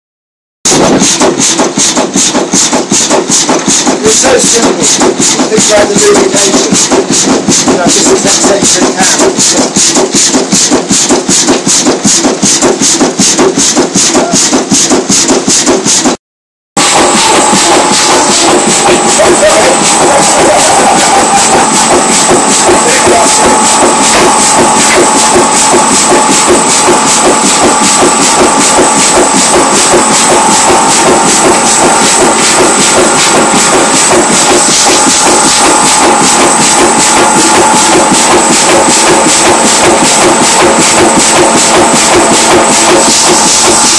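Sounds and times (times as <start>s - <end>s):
diesel engine running: 16.8s - 43.9s
steady high whine: 16.8s - 43.9s.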